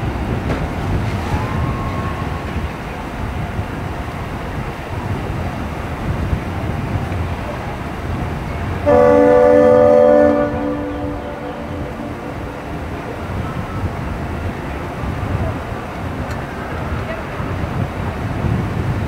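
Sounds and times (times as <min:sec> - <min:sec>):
boat engines rumbling: 0:00.0 - 0:19.0
wind: 0:00.0 - 0:19.0
boat air horn blast: 0:08.8 - 0:13.4.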